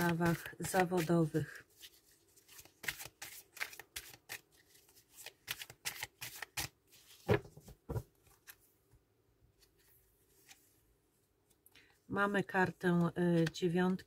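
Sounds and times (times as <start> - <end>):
cards being shuffled: 0.0 - 8.6.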